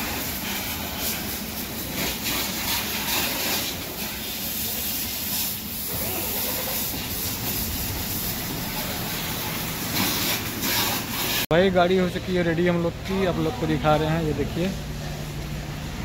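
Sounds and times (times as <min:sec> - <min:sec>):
pressure washer spray hissing: 0:00.0 - 0:11.5.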